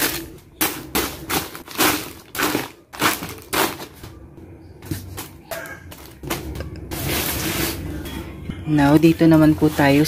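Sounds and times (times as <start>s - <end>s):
packets dropping into cardboard box: 0.0s - 4.0s
plastic packets crinkling: 0.0s - 4.0s.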